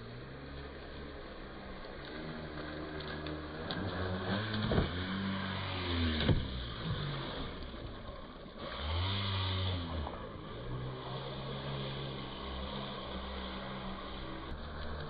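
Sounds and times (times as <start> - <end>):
toy truck electric motor: 2.5 - 7.7, 8.6 - 15.0.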